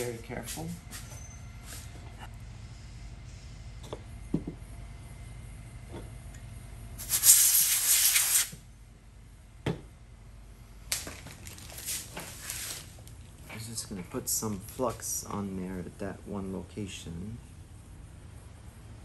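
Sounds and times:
tools knocking on workbench: 3.8s - 4.6s, 9.6s - 9.9s
loud hissing rattling burst: 7.0s - 8.5s.

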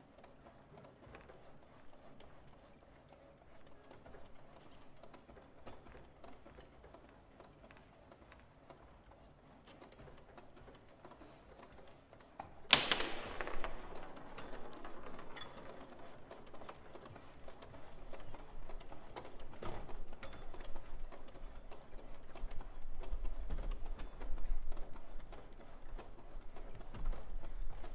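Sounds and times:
foosball rods and figures clicking: 9.7s - 27.9s.

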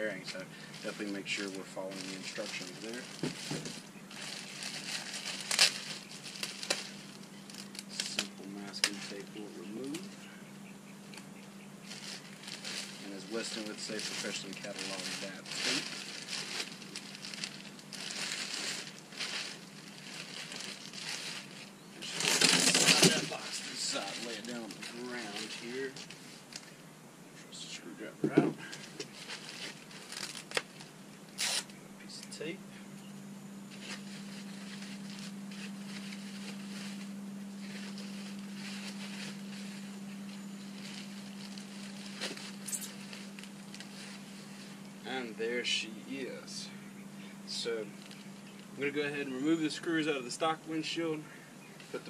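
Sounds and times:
plastic bag crinkling: 0.0s - 10.1s, 11.8s - 26.8s, 28.7s - 31.7s, 33.7s - 45.2s, 47.9s - 48.7s
steady low hum: 0.0s - 52.0s.

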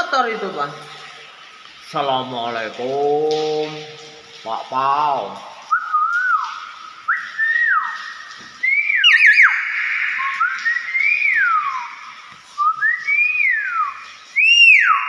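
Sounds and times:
myna bird whistling: 7.1s - 12.0s, 12.6s - 15.0s.

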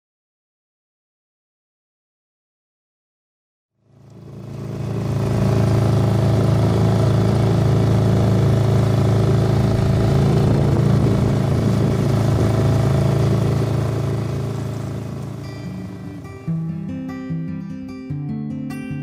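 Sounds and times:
outboard motor running: 3.9s - 16.5s.

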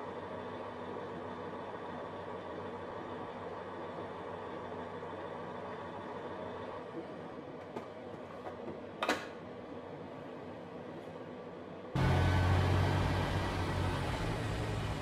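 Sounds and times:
truck cab drone while driving: 11.9s - 15.0s.

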